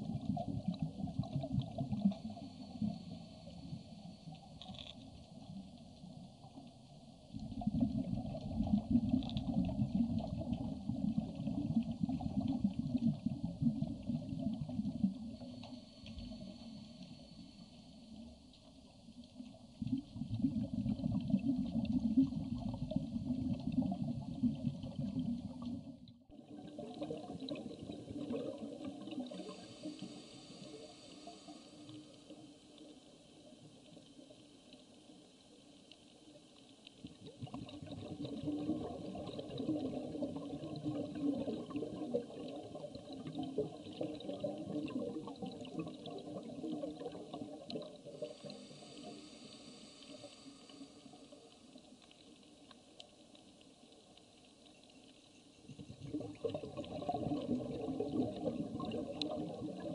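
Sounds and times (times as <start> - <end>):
underwater rumble of moving water: 0.0 - 59.9
thin water hiss: 29.0 - 32.6, 48.0 - 52.0.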